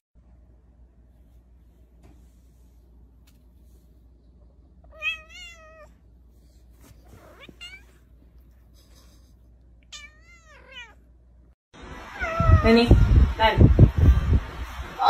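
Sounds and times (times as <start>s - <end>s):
cat meowing: 4.9s - 6.0s, 9.9s - 11.0s.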